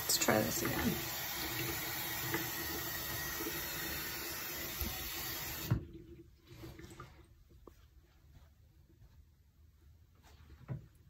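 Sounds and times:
tap running into sink: 0.0s - 6.0s
faint handling sounds: 6.4s - 11.0s.

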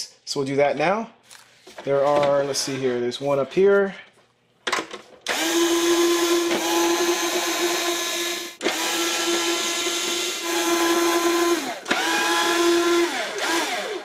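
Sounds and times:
power screwdriver whining: 5.3s - 14.0s.

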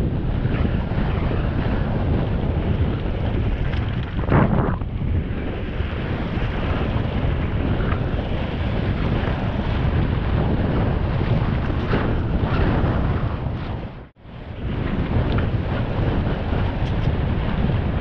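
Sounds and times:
wind rushing over microphone: 0.0s - 18.0s
bike rattle: 3.4s - 4.6s.

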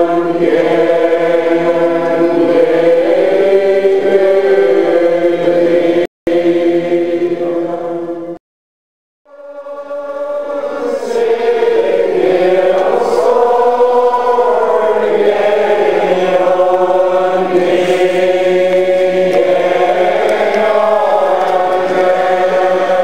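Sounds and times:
crowd singing unaccompanied: 0.0s - 8.4s, 9.3s - 23.0s.

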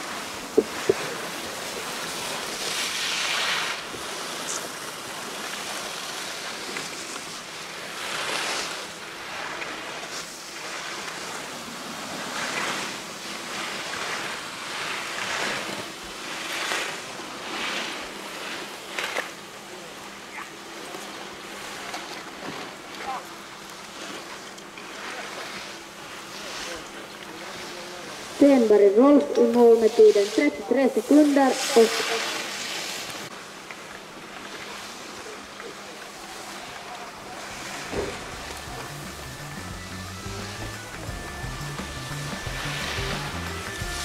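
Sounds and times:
skis scraping across snow: 0.0s - 44.0s.

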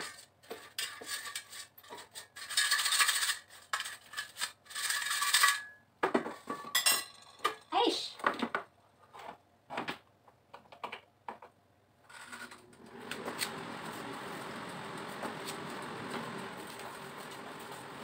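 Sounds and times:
air fryer fan running: 12.2s - 18.0s.

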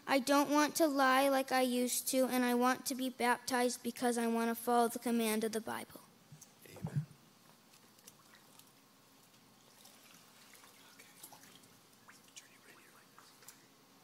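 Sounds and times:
faint water drips and splashes: 7.9s - 12.6s.

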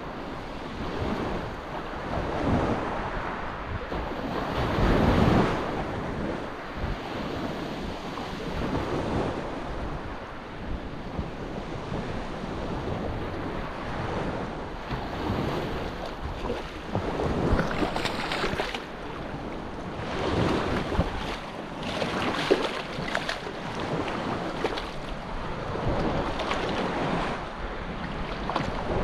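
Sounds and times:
wind buffeting microphone: 0.0s - 29.0s
small surf washing: 13.0s - 29.0s.

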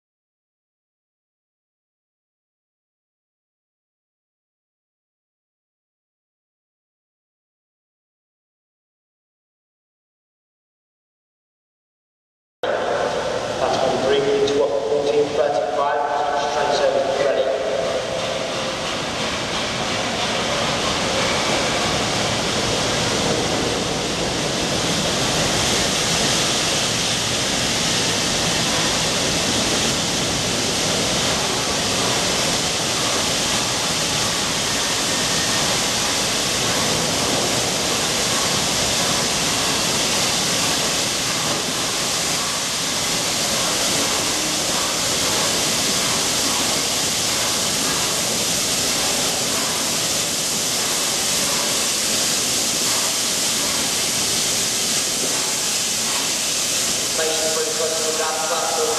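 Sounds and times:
steam hissing from locomotive: 12.7s - 58.9s.

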